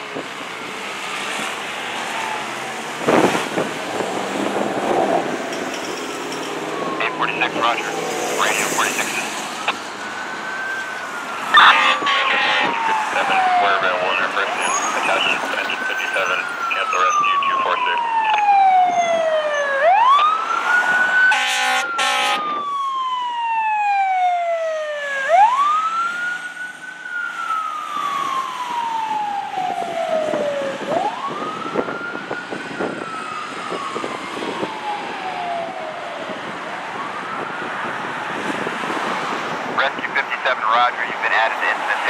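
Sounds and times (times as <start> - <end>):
fire engine siren wailing: 0.0 - 42.0
short horn blasts: 21.3 - 22.4.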